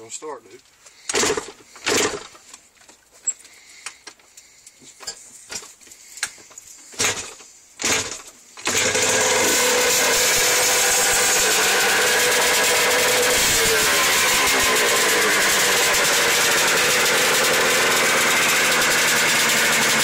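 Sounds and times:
engine kick-start sputtering: 0:01.1 - 0:02.4, 0:07.0 - 0:20.0
two-stroke engine running: 0:08.7 - 0:20.0.

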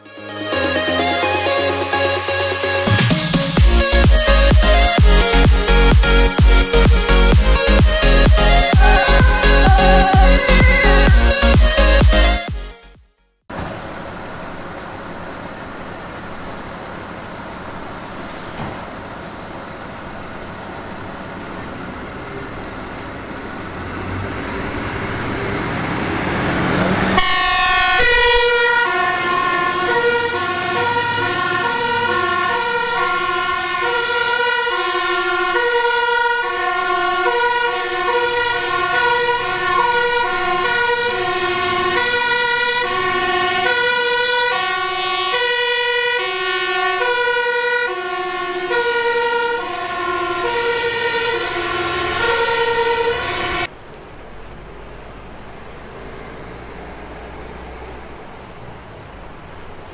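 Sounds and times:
two-tone fire engine siren: 0:04.3 - 0:12.4, 0:24.4 - 0:53.7.

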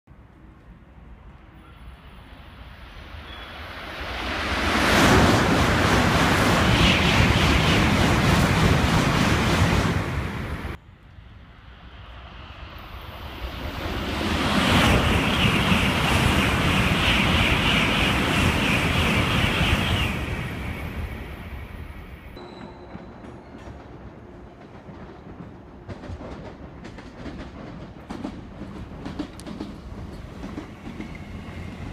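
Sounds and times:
high-speed train rushing past: 0:00.3 - 0:31.9.

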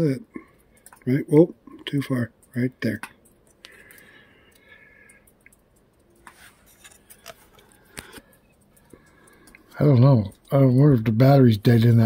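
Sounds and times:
clicks and knocks handling rifle: 0:06.2 - 0:08.3.

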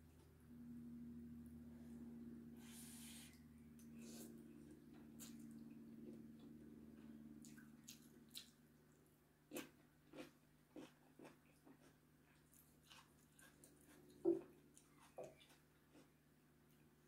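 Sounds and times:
steady low hum: 0:00.0 - 0:17.0
chewing: 0:05.2 - 0:08.6, 0:09.5 - 0:16.2.

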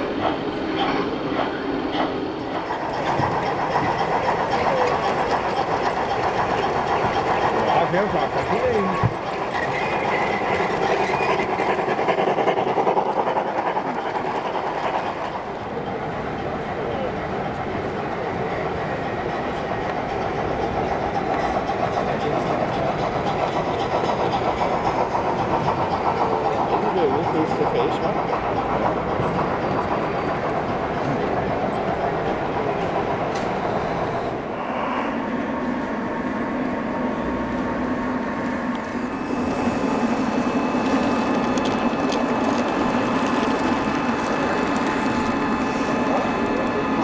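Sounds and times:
model steam locomotive chuffing: 0:00.0 - 0:34.6, 0:35.2 - 0:47.0
rail noise: 0:00.0 - 0:47.0.

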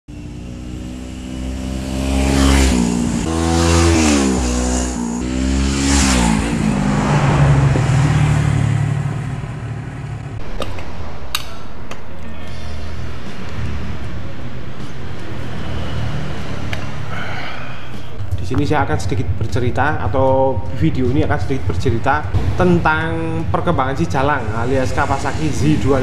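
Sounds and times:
motorcycle engine accelerating past: 0:00.1 - 0:10.4.

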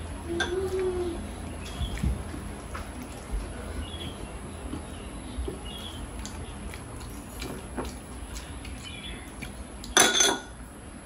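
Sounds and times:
chewing and mouth smacks: 0:05.6 - 0:10.0.

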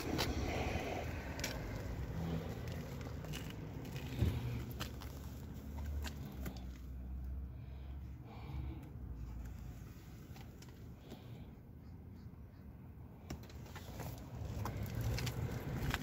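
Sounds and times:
low rumble: 0:00.0 - 0:06.4
rustling and scraping: 0:00.0 - 0:07.0, 0:13.3 - 0:16.0.

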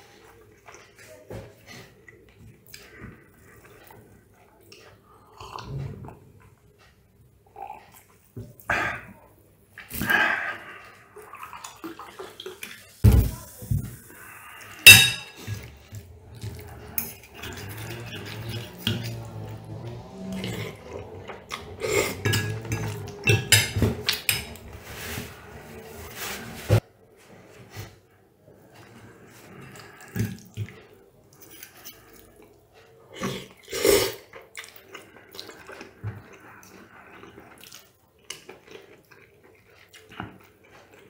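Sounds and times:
chewing: 0:00.0 - 0:13.0, 0:14.0 - 0:23.4, 0:28.6 - 0:41.0
cutlery clinking on a plate: 0:14.9 - 0:15.7.

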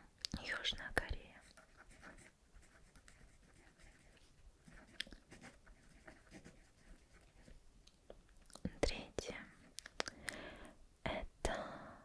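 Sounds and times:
pen scratching on paper: 0:01.4 - 0:07.6.

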